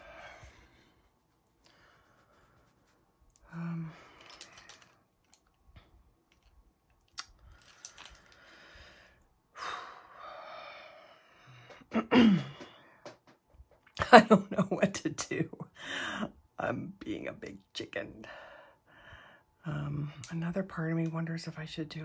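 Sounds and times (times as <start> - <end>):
woman sighing: 3.4 - 4.8, 9.6 - 13.0
pencils clicking and rustling: 4.1 - 5.6.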